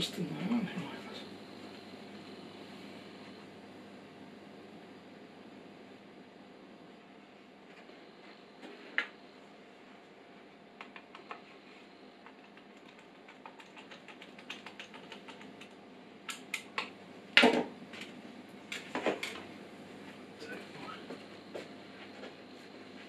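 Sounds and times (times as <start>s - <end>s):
cables and connectors clicking: 10.8s - 11.4s, 12.2s - 17.0s.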